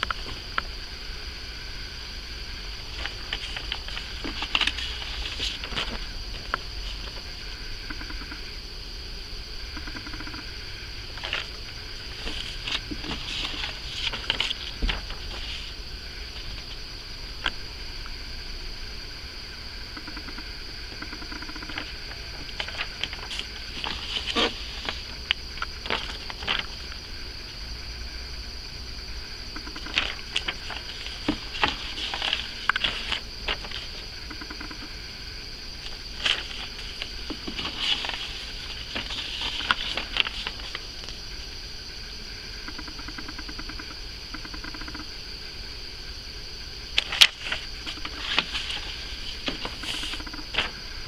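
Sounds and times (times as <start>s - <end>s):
steady high hiss: 0.0s - 51.0s
paper rustling and crinkling: 2.8s - 7.3s, 11.1s - 16.8s, 21.7s - 27.1s, 29.8s - 34.1s, 35.8s - 41.2s, 47.0s - 50.8s.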